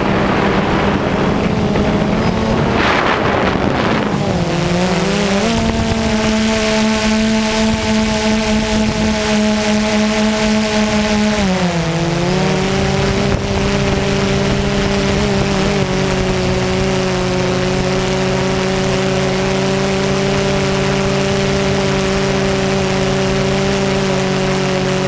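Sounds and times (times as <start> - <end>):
drone propellers humming: 0.0 - 25.0.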